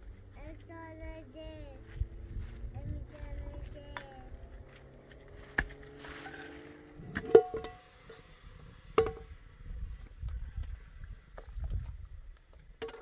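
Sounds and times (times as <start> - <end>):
sharp metallic knocks: 7.1 - 7.9, 9.0 - 9.3.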